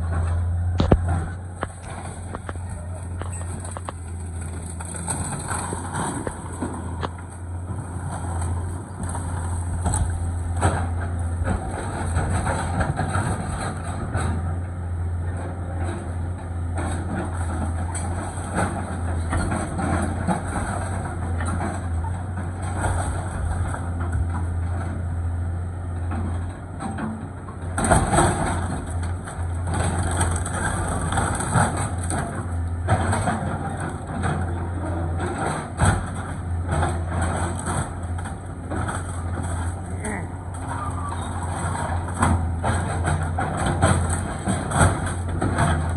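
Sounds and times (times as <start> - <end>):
excavator diesel engine running: 0.0 - 45.9
lumber cracking and crunching: 0.4 - 12.2
debris falling: 0.8 - 13.8, 27.7 - 34.6, 35.6 - 45.9.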